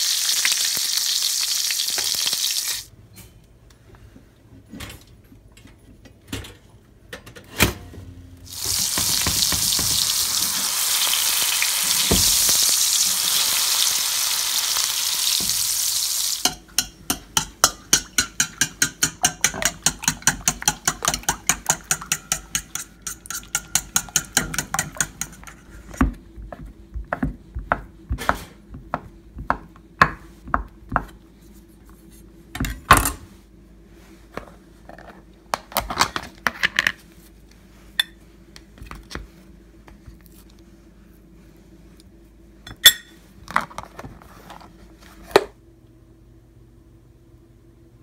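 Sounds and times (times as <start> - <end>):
utensils and dishes clinking: 16.4 - 25.6
fork beating eggs in metal bowl: 16.4 - 26.0.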